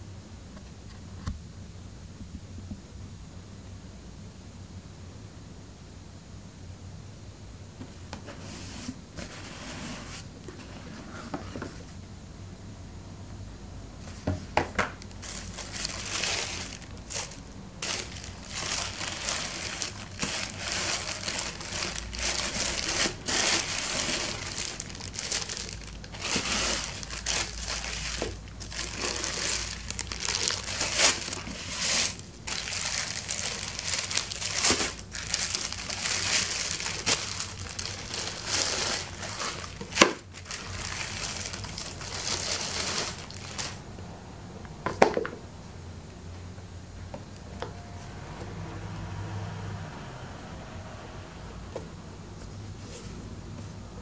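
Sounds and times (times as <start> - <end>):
tissue paper and plastic crinkling: 14.0 - 43.8.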